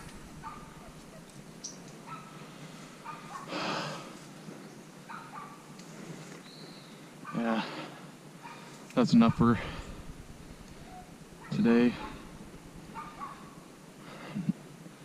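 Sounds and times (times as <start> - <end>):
distant dog barking: 0.0 - 1.4, 2.0 - 3.6, 5.1 - 5.7, 8.4 - 8.7, 9.3 - 13.7.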